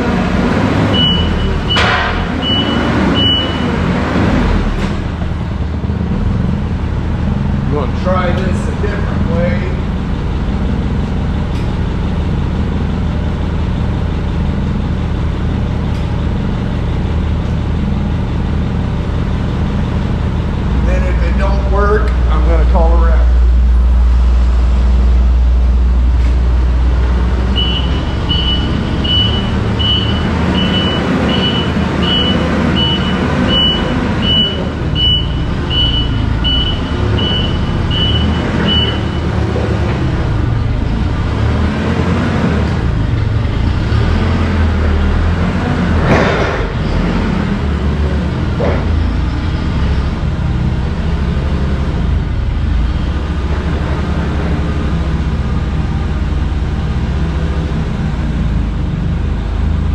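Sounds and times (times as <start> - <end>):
vehicle engine rumbling: 0.0 - 59.9
reversing alarm beeping: 0.9 - 3.8, 27.5 - 39.4.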